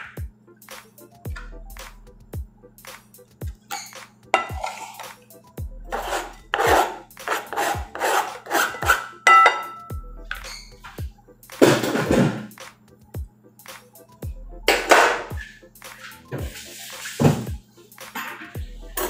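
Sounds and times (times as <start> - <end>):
background music with beat: 0.0 - 19.0
scraping on plastic cutting board: 4.6 - 5.0, 5.9 - 9.1.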